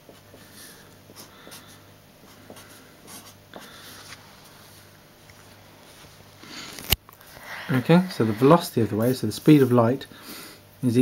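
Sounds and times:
marker pen scratching paper: 0:01.1 - 0:04.2.

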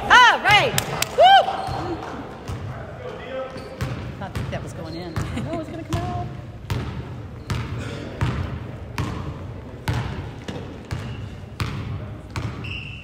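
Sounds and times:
basketball bouncing on gym floor: 0:03.8 - 0:12.7.

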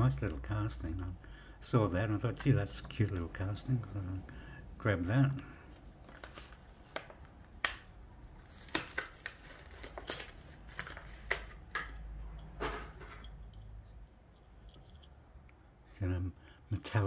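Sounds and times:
plastic packaging crinkling: 0:08.2 - 0:11.8.

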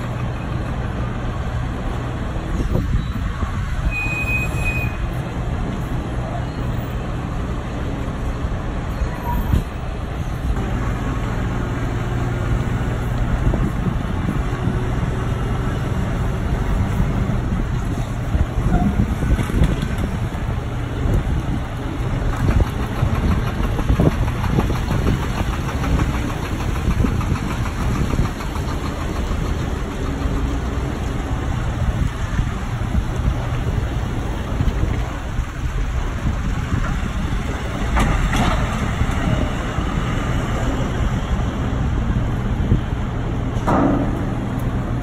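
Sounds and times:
diesel truck engines: 0:00.0 - 0:45.0
forklift working: 0:00.0 - 0:45.0
clunks: 0:43.5 - 0:45.0.

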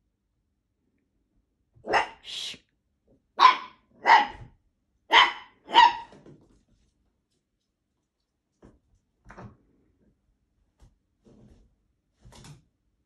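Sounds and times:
dog barking: 0:01.8 - 0:02.4, 0:03.4 - 0:06.2.

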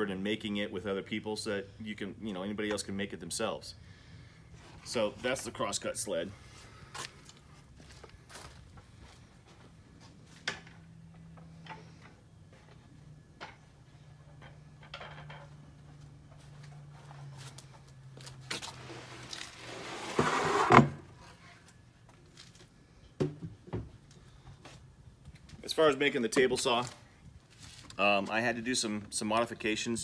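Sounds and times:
wood scraping on table: 0:18.8 - 0:21.3.

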